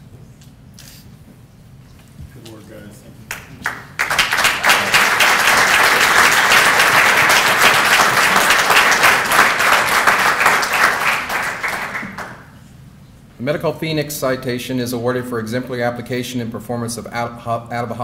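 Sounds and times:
audience applauding: 0:03.3 - 0:12.5.

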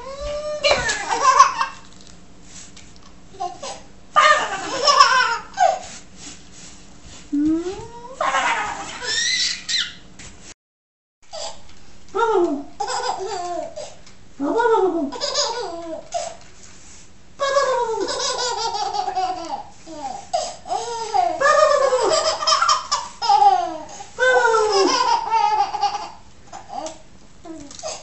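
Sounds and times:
baby laughing: 0:00.0 - 0:01.8, 0:03.4 - 0:05.8, 0:08.2 - 0:10.0, 0:12.8 - 0:13.9, 0:15.1 - 0:16.3, 0:17.4 - 0:27.0.

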